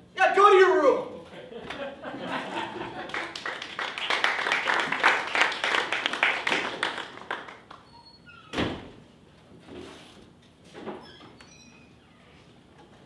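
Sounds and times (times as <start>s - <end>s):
audience applause: 2.5s - 7.8s
faint high squeaks: 7.8s - 8.6s, 11.0s - 12.6s.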